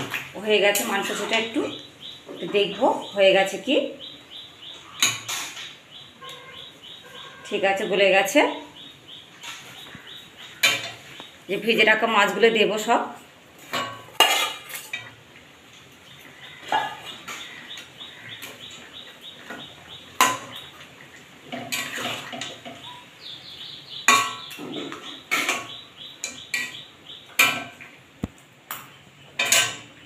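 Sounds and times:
spatula scraping a metal pan: 0:13.7 - 0:15.1, 0:21.5 - 0:22.8.

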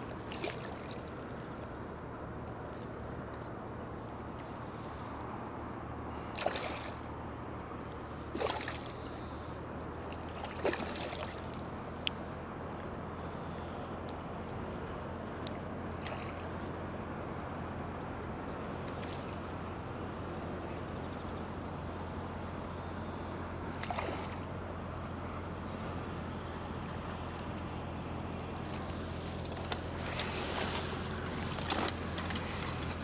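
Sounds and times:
low background rumble: 0:00.0 - 0:33.0
small splashes with bubbling gulp: 0:00.2 - 0:01.2, 0:06.2 - 0:07.1, 0:08.3 - 0:09.3, 0:10.1 - 0:11.6, 0:16.0 - 0:16.4, 0:23.7 - 0:24.5.

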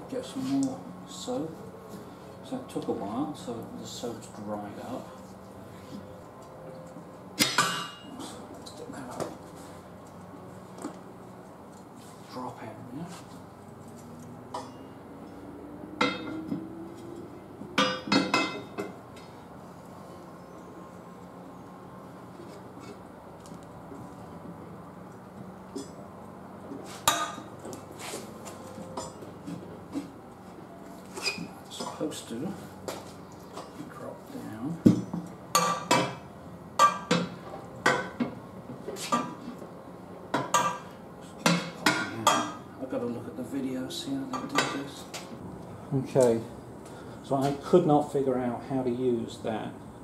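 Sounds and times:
steel bar clanking on wheel rim: 0:16.0 - 0:17.2.

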